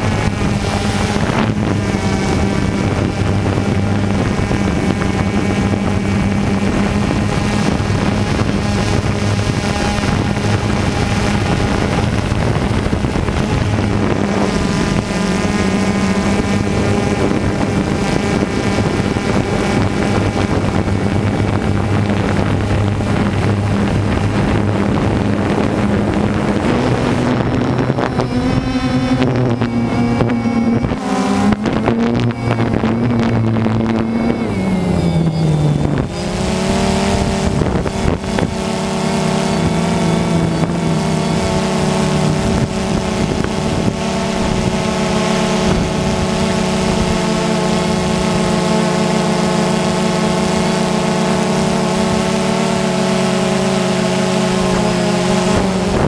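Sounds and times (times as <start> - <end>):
wind hiss: 0.0 - 35.2
drone propellers buzzing: 0.0 - 56.0.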